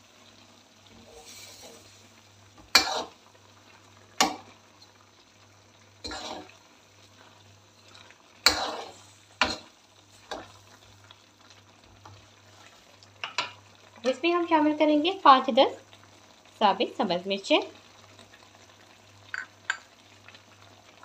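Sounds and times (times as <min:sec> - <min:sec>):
metal spoon scraping metal pan: 0:06.0 - 0:06.5.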